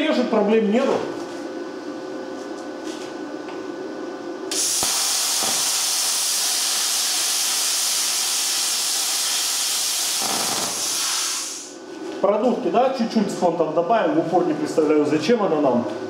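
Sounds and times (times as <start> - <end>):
low machine hum: 0.0 - 6.8, 11.6 - 16.0
plasma cutter hissing: 4.5 - 11.7.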